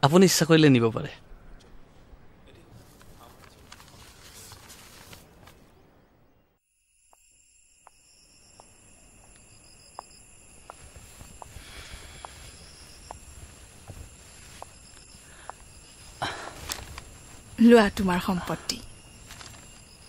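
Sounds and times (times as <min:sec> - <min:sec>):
crickets trilling: 0:05.3 - 0:20.0.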